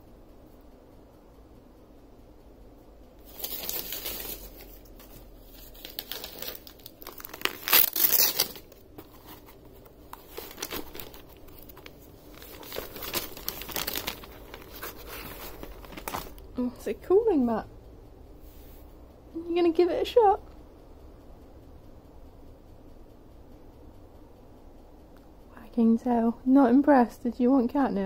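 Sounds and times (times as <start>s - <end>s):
wrapping paper tearing and crinkling: 3.2s - 16.4s.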